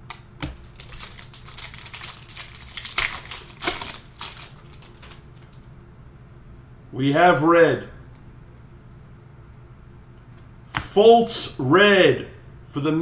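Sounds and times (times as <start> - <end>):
cards being shuffled by hand: 0.0 - 5.6.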